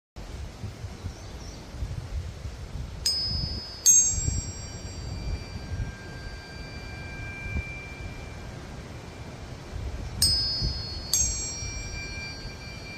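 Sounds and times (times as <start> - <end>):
tuning forks struck and ringing: 3.0 - 12.9.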